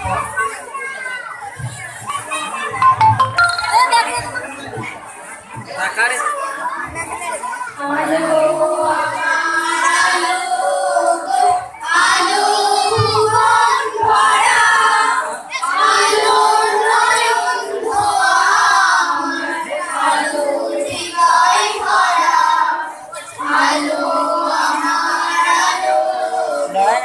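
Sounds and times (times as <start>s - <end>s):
girls singing into microphones: 7.8s - 26.9s.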